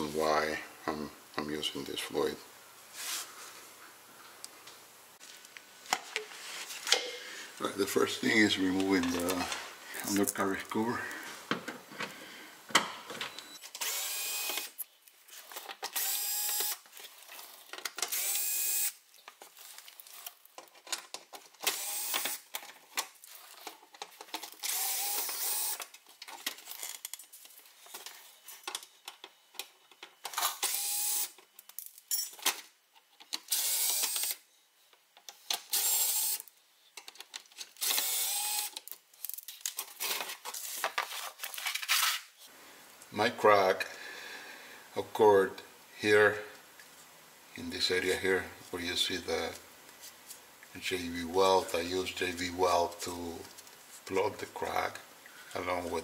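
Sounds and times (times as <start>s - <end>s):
cordless drill whining: 13.8s - 14.7s, 16.0s - 16.8s, 18.1s - 18.9s, 24.6s - 25.8s, 30.6s - 31.3s, 33.5s - 34.3s, 35.7s - 36.4s, 37.8s - 38.7s.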